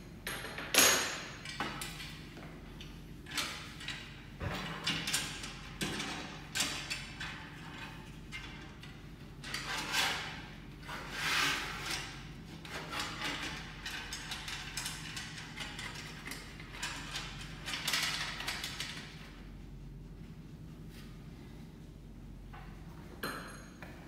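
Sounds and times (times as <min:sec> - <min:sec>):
steady low hum: 0:00.0 - 0:24.0
metal parts clicking and rattling: 0:12.7 - 0:19.1.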